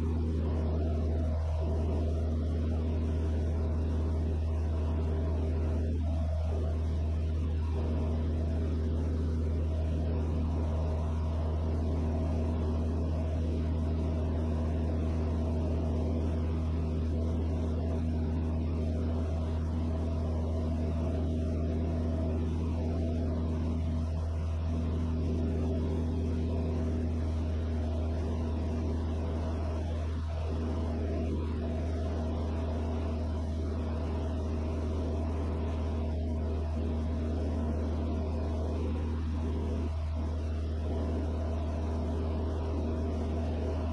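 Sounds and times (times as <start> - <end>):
light aircraft engine droning: 0.0 - 43.9.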